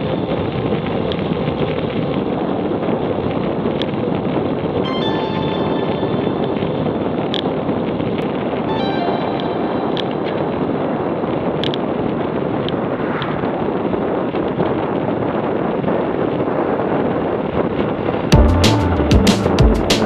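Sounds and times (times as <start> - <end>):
wind buffeting microphone: 10.4 - 18.3.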